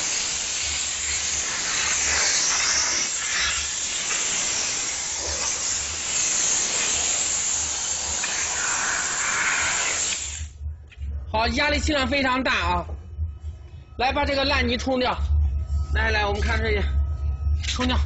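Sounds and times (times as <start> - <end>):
steam jet hissing: 0.0 - 10.6.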